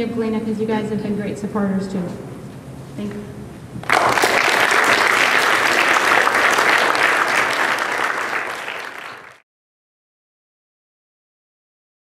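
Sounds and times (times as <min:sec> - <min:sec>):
audience applauding: 0:03.8 - 0:09.4.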